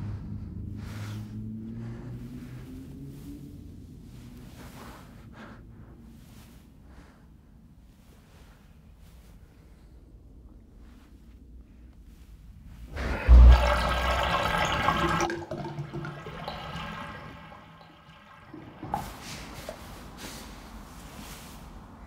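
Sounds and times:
water gurgling down a drain: 0:12.9 - 0:20.0.

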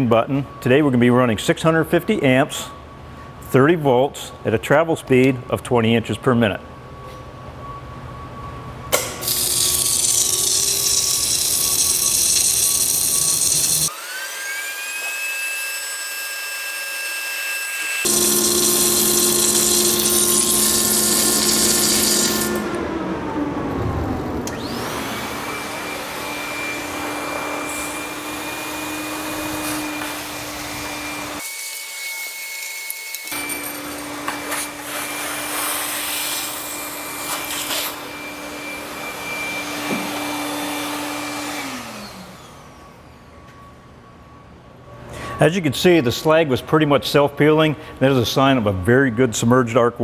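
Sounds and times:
electric motors whining: 0:08.9 - 0:14.8, 0:17.0 - 0:44.4.

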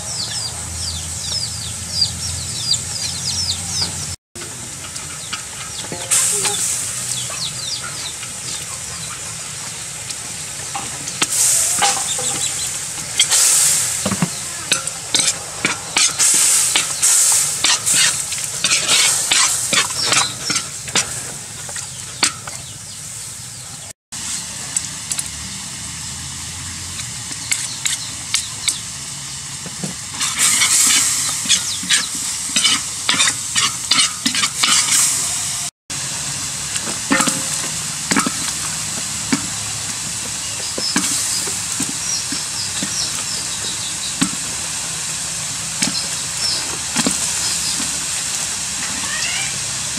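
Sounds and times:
food sizzling in a wok: 0:03.8 - 0:49.9
metal ladle scraping a pan: 0:10.8 - 0:22.6, 0:30.2 - 0:35.7, 0:37.1 - 0:39.6.

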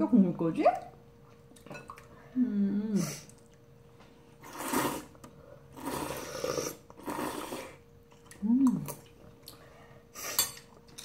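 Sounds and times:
noodles being slurped: 0:04.4 - 0:08.4.

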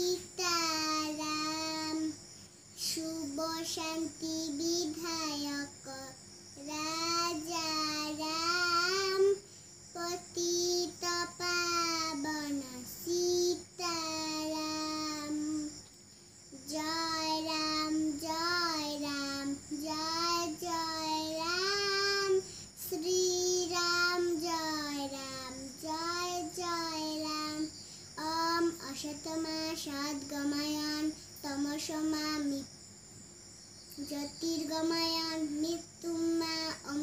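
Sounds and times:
girl singing prayer song: 0:00.0 - 0:33.1, 0:33.7 - 0:37.0.

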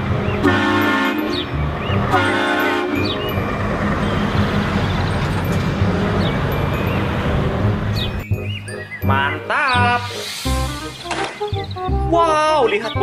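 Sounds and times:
diesel engine rumble: 0:00.0 - 0:09.5
truck air horn blasts: 0:00.4 - 0:01.5, 0:02.1 - 0:03.2.

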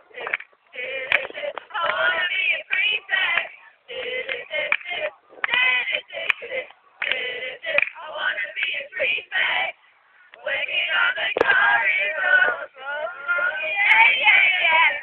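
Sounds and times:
voices singing: 0:00.0 - 0:15.0.

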